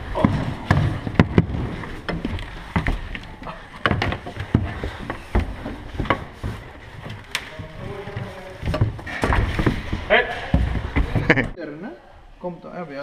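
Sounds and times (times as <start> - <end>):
sharp knocks and clicks on wood: 0.2 - 6.3.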